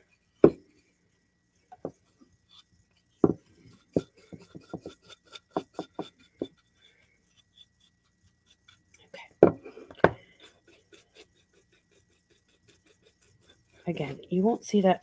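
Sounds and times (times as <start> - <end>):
small ticks: 6.3 - 9.3
wooden board taps: 9.4 - 10.2.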